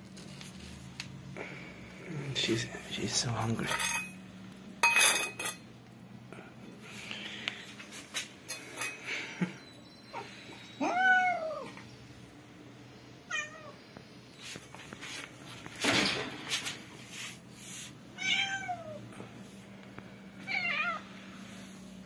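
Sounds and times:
cat meowing: 0:10.8 - 0:11.8, 0:13.3 - 0:13.8, 0:18.2 - 0:19.0, 0:20.4 - 0:21.0.

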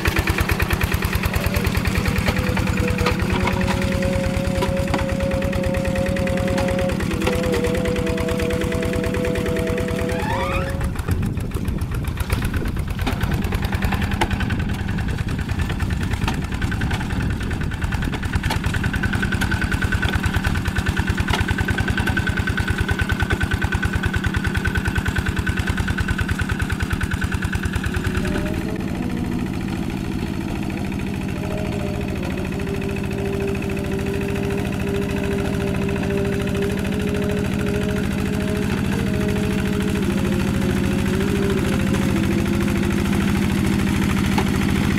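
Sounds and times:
diesel engine running under load: 0:00.0 - 0:44.9.

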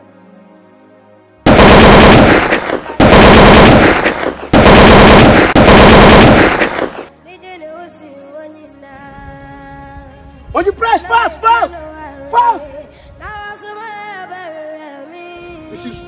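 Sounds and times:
machine-gun fire: 0:01.5 - 0:07.1.

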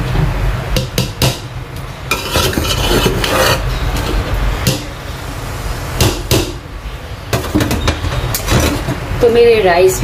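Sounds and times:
spoon scraping rice in pot: 0:02.1 - 0:04.2.

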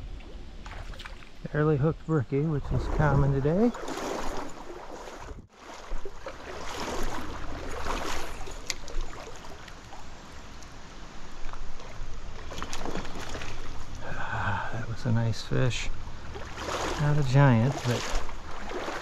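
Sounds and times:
stream water rushing and splashing: 0:02.5 - 0:19.0.

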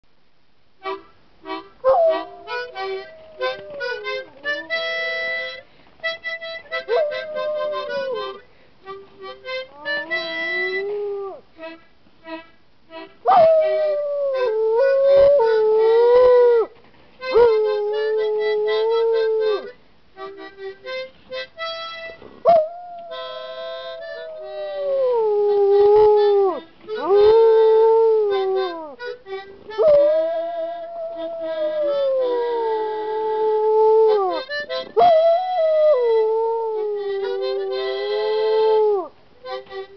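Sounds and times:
harmonica notes and chords: 0:00.8 - 0:16.3, 0:17.2 - 0:39.9
dog howling: 0:01.8 - 0:05.6, 0:06.7 - 0:08.4, 0:09.6 - 0:11.4, 0:13.3 - 0:19.7, 0:22.4 - 0:29.0, 0:29.8 - 0:39.1.

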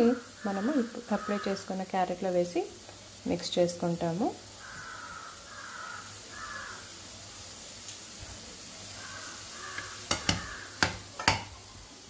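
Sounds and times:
carrot sizzling in oil: 0:00.0 - 0:12.0
spatula stirring: 0:09.0 - 0:11.6
spatula knocking on pan: 0:09.7 - 0:11.6.

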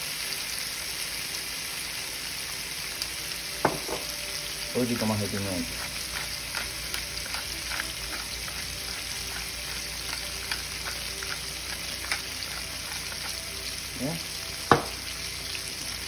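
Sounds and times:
food sizzling in a pan: 0:00.0 - 0:16.0
sharp knock: 0:14.7 - 0:15.0.

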